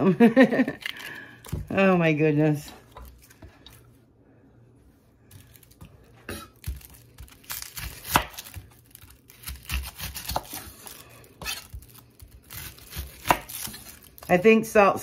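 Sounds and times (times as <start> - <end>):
onion skin tearing and crackling: 0.5 - 1.7, 5.3 - 14.4.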